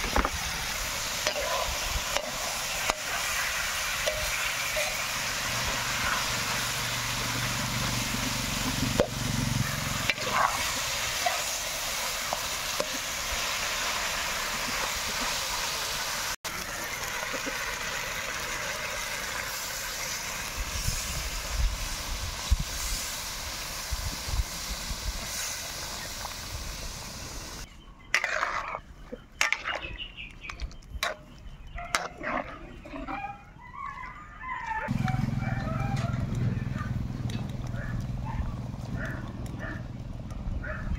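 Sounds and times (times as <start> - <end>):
food sizzling in a wok: 0.0 - 27.7
metal spatula scraping a pan: 1.2 - 6.6, 28.1 - 30.1.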